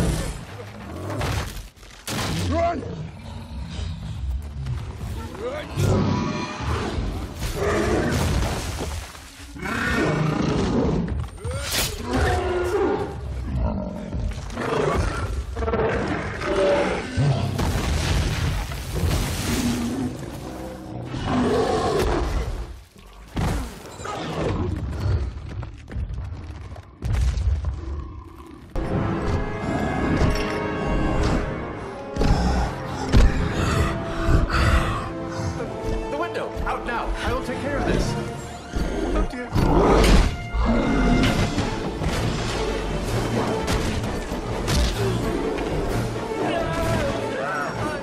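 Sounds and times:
film music: 28.7s - 48.0s.

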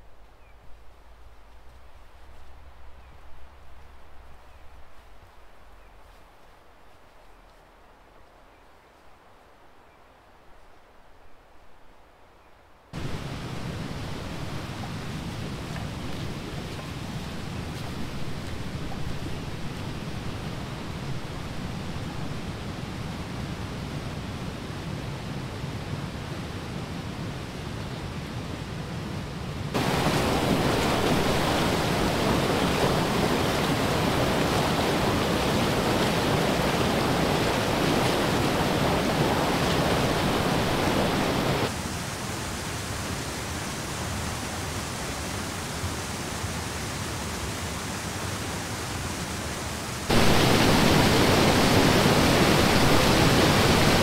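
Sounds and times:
stream rushing over rapids: 13.0s - 54.0s.

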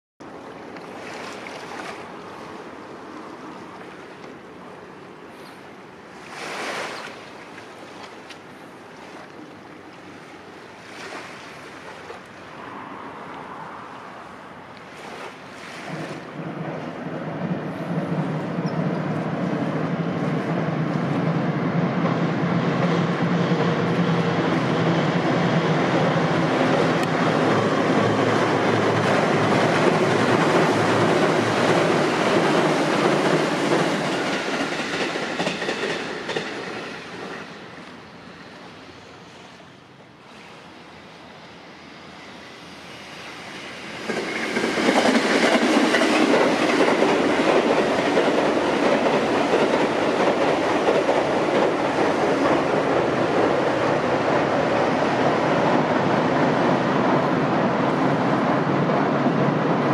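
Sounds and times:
electric train on steel bridge: 0.2s - 59.9s
wheels clacking over rails: 26.1s - 37.6s, 44.0s - 56.5s.

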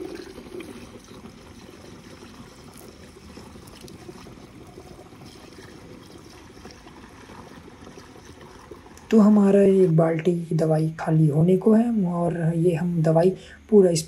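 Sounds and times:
liquid pouring into plastic tank: 0.0s - 10.3s.

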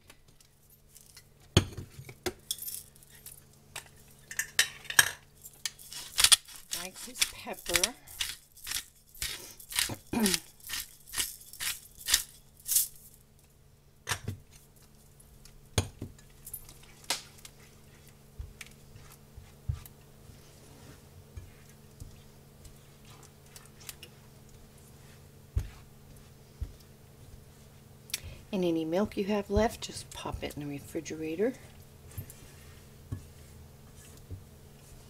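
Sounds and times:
pepper grinder clicking: 5.9s - 12.3s.

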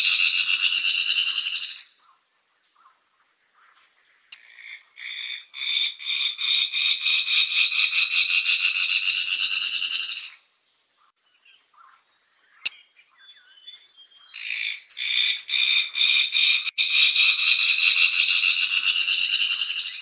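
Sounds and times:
bird pulsing trill: 15.6s - 20.0s.

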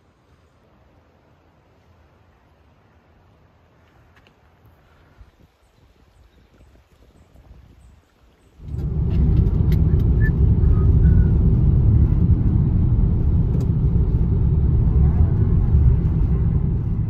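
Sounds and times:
road and engine rumble inside car: 8.6s - 17.0s.

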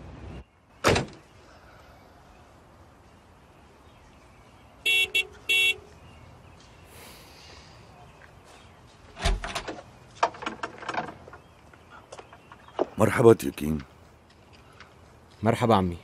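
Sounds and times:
car horn beeps: 4.8s - 5.9s
irregular knocks and rustles: 8.2s - 15.4s.

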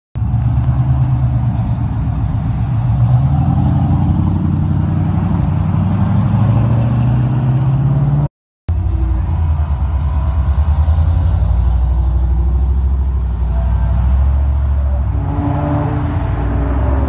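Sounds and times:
pickup truck engine running: 8.7s - 15.2s.

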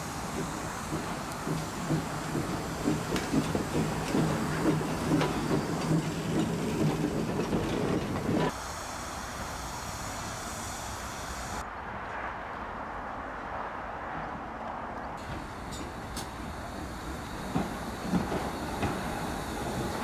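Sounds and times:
train rail clatter: 0.0s - 8.6s, 15.2s - 20.0s
steam engine low hum: 0.0s - 11.6s, 15.2s - 20.0s.

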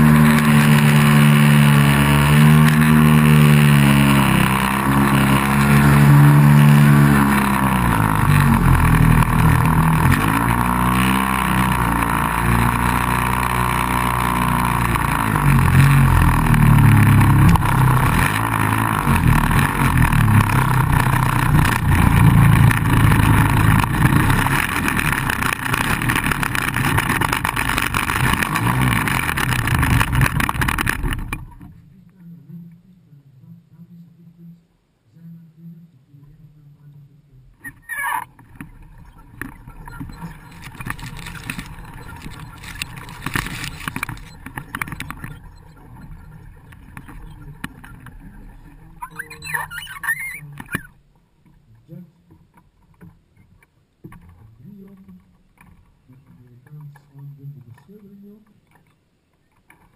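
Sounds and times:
model aircraft engine running: 0.0s - 31.4s.

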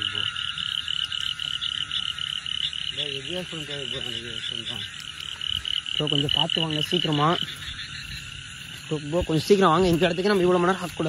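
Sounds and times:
frogs calling in pulses: 0.0s - 11.0s
person speaking: 2.9s - 5.1s, 5.8s - 7.6s, 8.7s - 11.0s.

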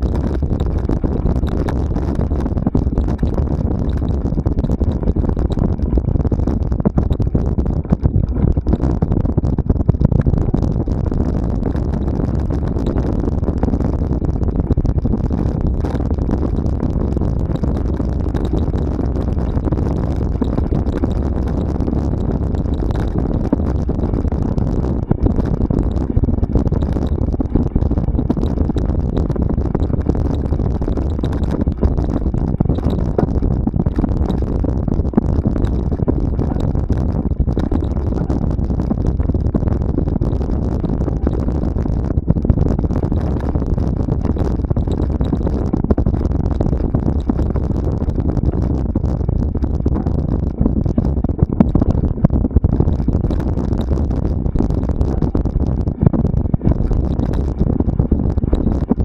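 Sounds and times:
wind rumble on microphone: 0.0s - 59.0s.

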